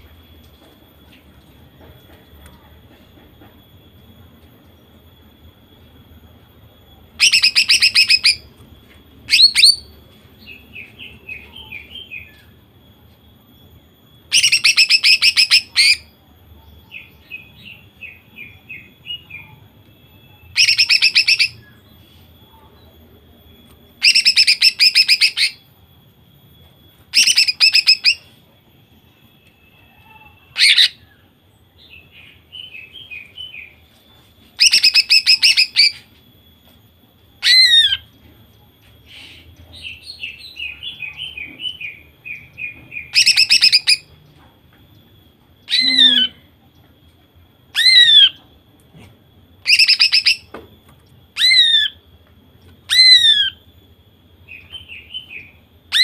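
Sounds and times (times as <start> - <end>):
bird twittering: 7.2 - 8.4, 9.3 - 9.9, 20.4 - 21.8, 27.1 - 28.3, 39.1 - 44.1, 45.6 - 46.5, 47.7 - 48.4, 49.6 - 50.5, 51.4 - 52.0, 52.8 - 53.7
bird buzzy trill bursts: 45.6 - 46.5.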